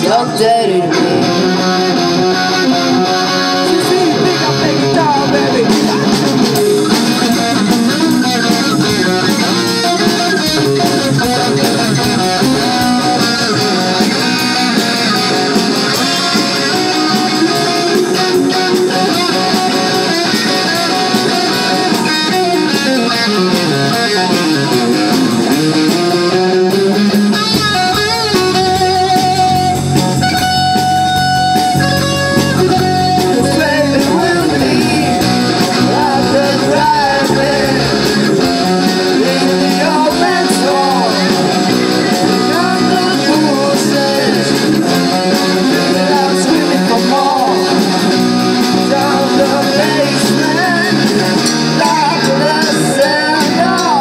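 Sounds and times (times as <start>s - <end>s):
bass guitar: 0.0s - 54.0s
drums: 0.0s - 54.0s
electric guitar: 0.0s - 54.0s.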